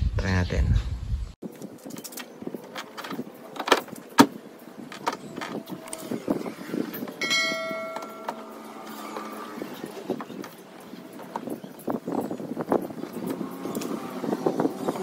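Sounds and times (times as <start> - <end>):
bell-like ringing tone: 7.2 - 9.6.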